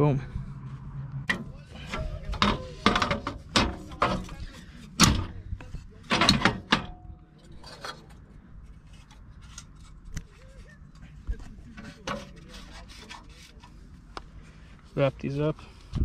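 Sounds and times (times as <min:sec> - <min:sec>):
strap hardware clicking and clanking: 0:01.3 - 0:08.2.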